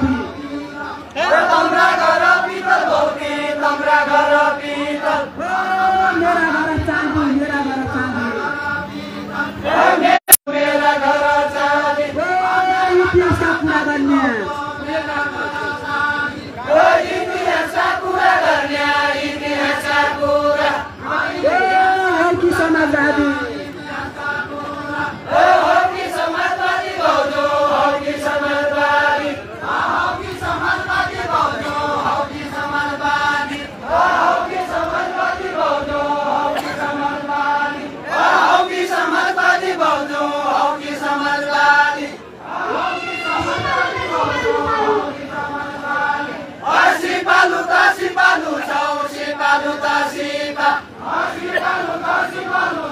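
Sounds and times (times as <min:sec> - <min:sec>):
group singing folk song: 0:00.0 - 0:52.9.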